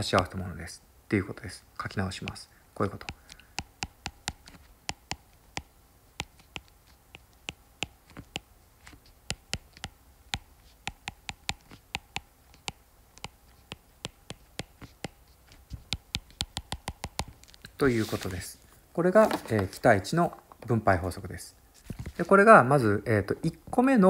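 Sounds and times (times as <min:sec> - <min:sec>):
stylus clicking on tablet screen: 0:02.1 - 0:17.8.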